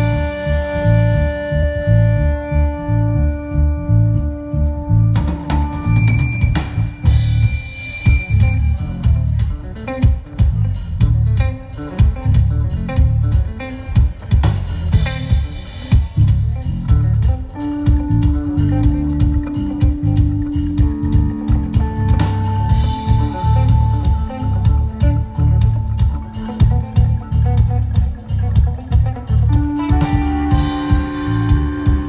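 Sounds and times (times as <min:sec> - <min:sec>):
rock band playing: 0:00.0 - 0:32.0.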